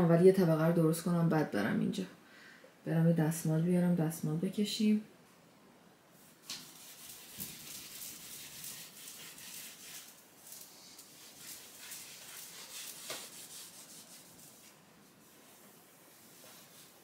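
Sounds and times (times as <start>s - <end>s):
cloth rubbing on shelf: 6.2s - 17.0s.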